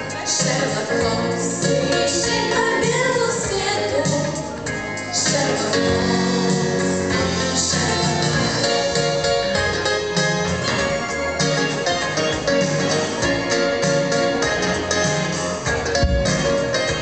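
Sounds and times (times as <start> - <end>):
pop backing track: 0.0 - 17.0
girls singing duet: 0.3 - 7.9.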